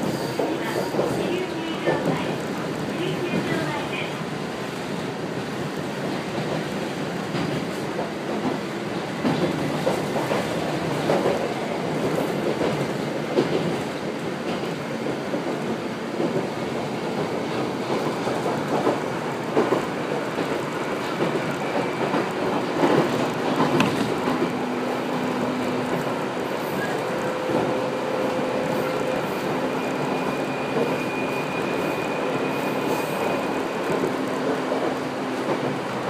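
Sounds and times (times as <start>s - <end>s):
train wheels rumbling on rail: 0.0s - 36.0s
wheels clicking over rail joints: 6.0s - 27.9s.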